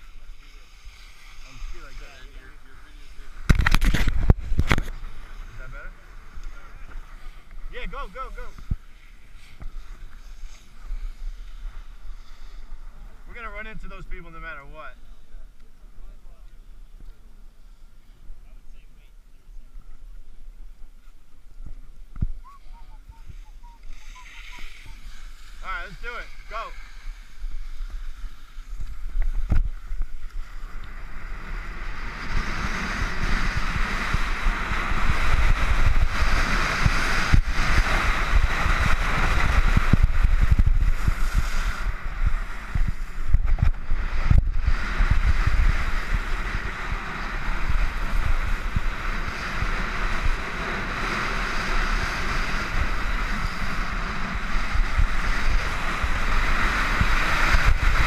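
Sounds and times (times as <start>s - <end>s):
skis scraping over packed snow: 0.0s - 58.0s
wind buffeting microphone: 21.5s - 58.0s.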